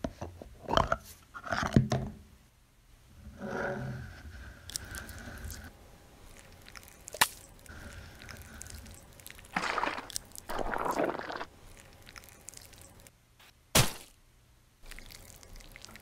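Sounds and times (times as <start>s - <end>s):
thick gel squelching: 6.3s - 13.1s, 14.8s - 16.0s.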